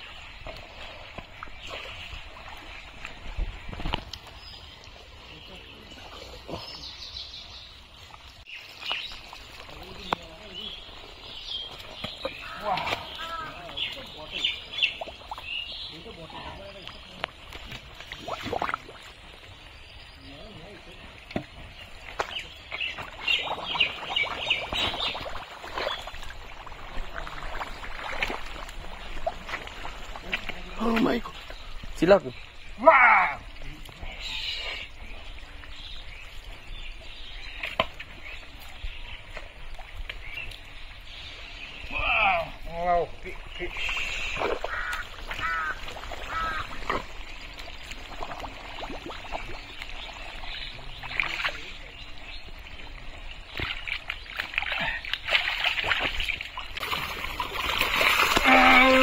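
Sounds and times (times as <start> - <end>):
wet mud squelching and splashing: 8.5 - 19.5, 22.0 - 31.7, 43.6 - 59.0
nasal animal calls: 43.7 - 47.0.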